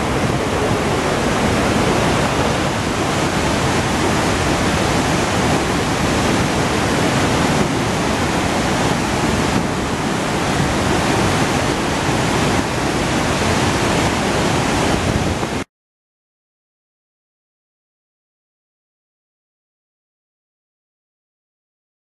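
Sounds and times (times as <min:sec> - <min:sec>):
rush of falling water: 0:00.0 - 0:15.7.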